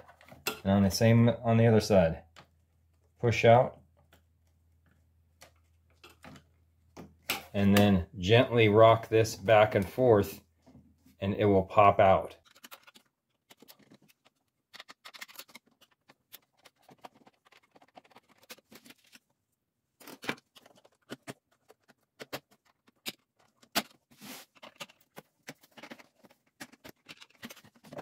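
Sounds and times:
plastic clicks and rattles: 12.4s - 19.2s, 20.0s - 28.0s.

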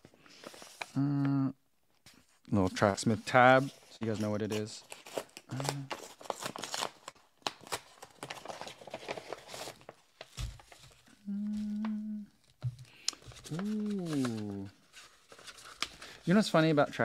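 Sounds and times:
man humming: 1.0s - 1.6s, 11.2s - 12.4s, 13.5s - 14.7s
paper crinkling and tearing: 2.7s - 11.9s, 13.0s - 16.6s.

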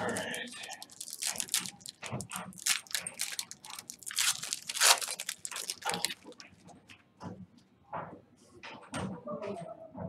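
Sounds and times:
foil wrapper crinkling: 0.0s - 6.6s.

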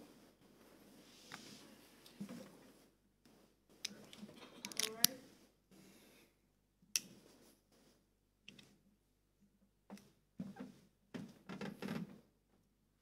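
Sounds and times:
soft knocks and shuffles: 0.0s - 4.6s.

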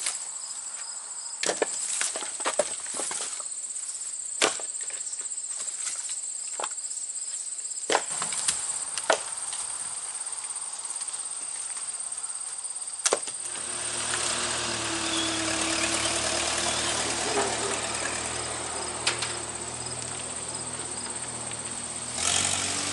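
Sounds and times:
cicadas chorus: 0.0s - 22.9s
logs knocking onto a trailer: 13.0s - 20.2s
tractor engine running: 13.3s - 22.9s.

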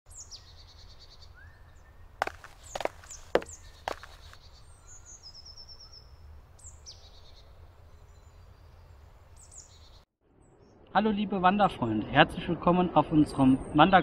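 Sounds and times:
small birds chirping: 0.1s - 10.8s.

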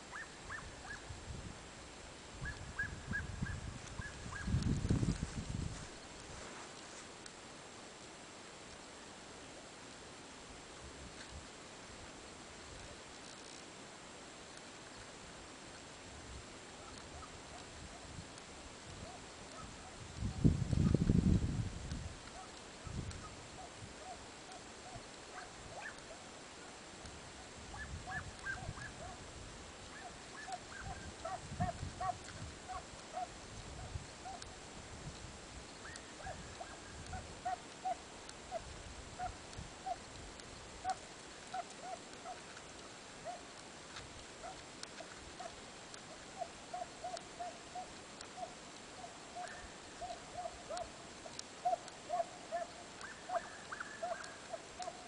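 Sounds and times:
hounds yelping: 0.1s - 1.0s, 23.2s - 26.2s, 27.7s - 29.2s, 29.9s - 34.5s, 35.8s - 40.0s, 40.8s - 42.4s, 43.2s - 43.5s, 44.4s - 44.6s, 45.4s - 55.0s.

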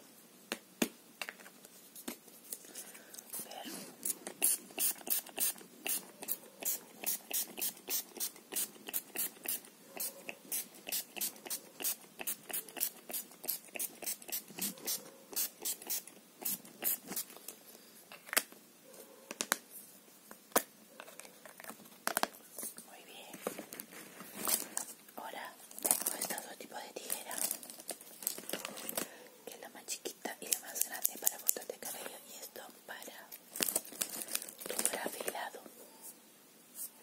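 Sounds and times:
spray bottle hissing sprays: 4.4s - 17.3s.

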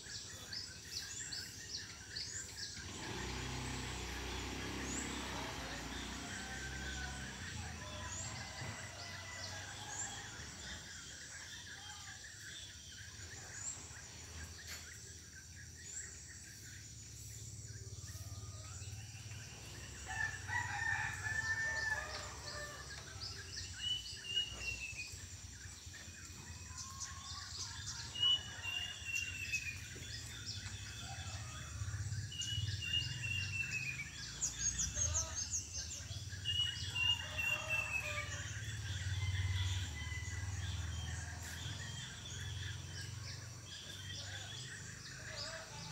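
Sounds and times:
small birds chirping: 0.0s - 45.9s
rooster crowing: 5.0s - 10.9s, 18.6s - 23.4s, 36.5s - 43.4s.

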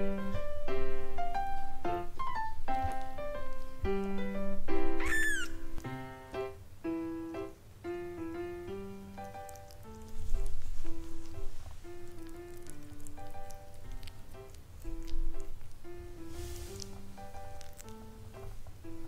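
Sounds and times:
background music melody: 0.0s - 19.0s
kitten mewing: 5.0s - 5.7s.

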